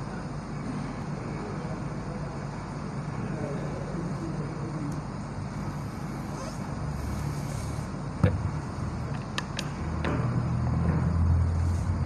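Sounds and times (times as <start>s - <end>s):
microphone base clicks and knocks: 8.2s - 8.5s.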